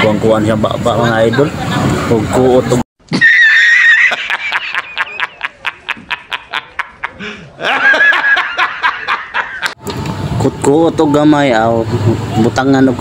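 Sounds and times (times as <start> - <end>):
man laughing hysterically: 3.1 - 9.8.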